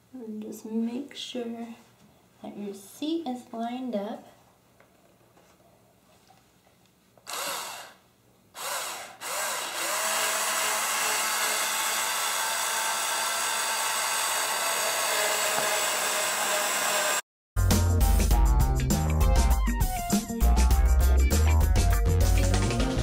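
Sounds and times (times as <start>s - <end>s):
power drill driving screws: 7.2s - 8.0s, 8.6s - 17.2s
music: 17.6s - 23.0s.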